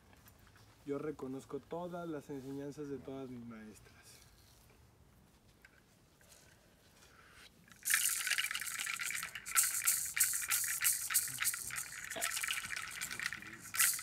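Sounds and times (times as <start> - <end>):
rattle shaken rapidly: 7.7 - 14.0.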